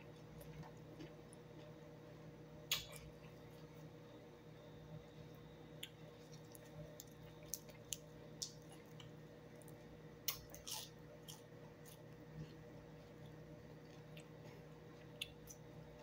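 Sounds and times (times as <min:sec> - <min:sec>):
steady low hum: 0:00.0 - 0:16.0
chewing and mouth smacks: 0:05.8 - 0:15.7.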